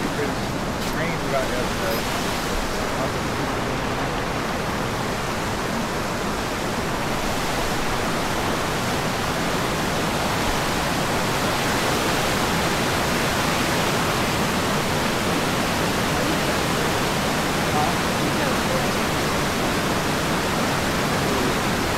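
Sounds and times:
creek water rushing over rocks: 0.0 - 21.9.

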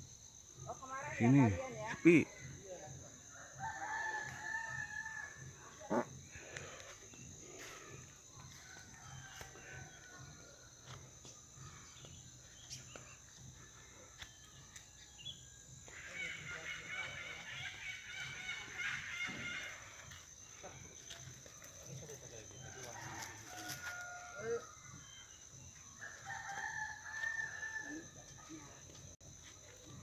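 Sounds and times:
high insect drone: 0.0 - 30.0
rooster crowing: 3.3 - 5.8, 7.6 - 11.0, 22.5 - 28.7.

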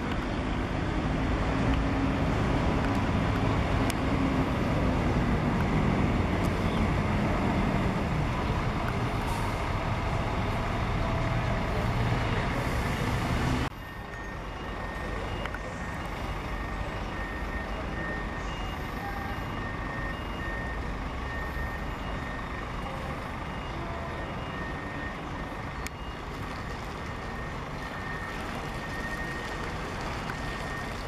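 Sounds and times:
reversing alarm beeping: 12.4 - 31.0.

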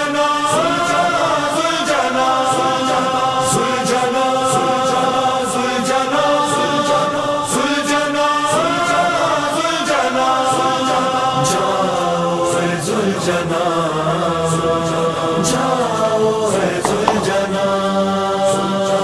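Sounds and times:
group of voices singing a lament: 0.0 - 19.0
light steady beat: 16.9 - 17.5.

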